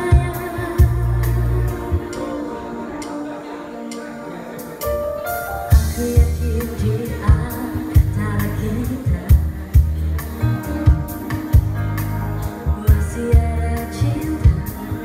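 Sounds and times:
bass and drum beat: 0.0 - 2.2, 5.7 - 15.0
woman singing into microphone: 0.0 - 4.3, 5.7 - 11.6, 12.4 - 15.0
keyboard accompaniment: 0.0 - 15.0.

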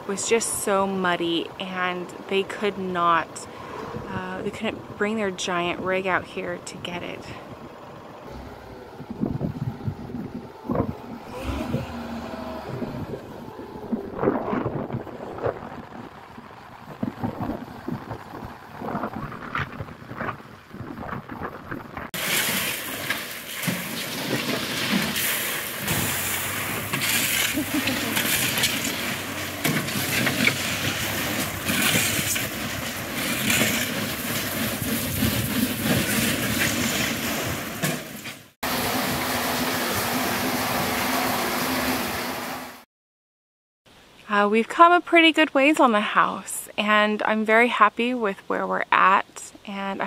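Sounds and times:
gravel raked in steel trailer: 22.2 - 42.0.

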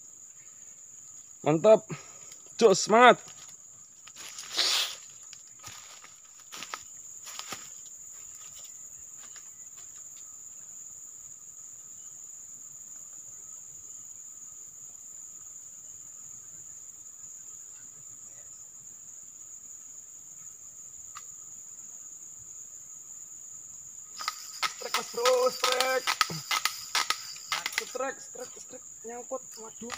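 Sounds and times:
insects trilling: 0.0 - 29.9
faint ticks: 21.1 - 21.4.

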